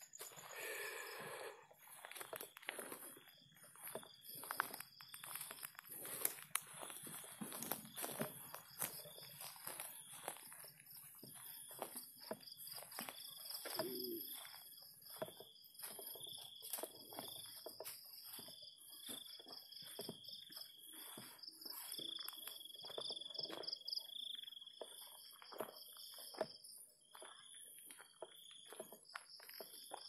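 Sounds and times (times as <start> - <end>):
night insects trilling: 0.0 - 30.0
footsteps through grass: 1.3 - 23.8.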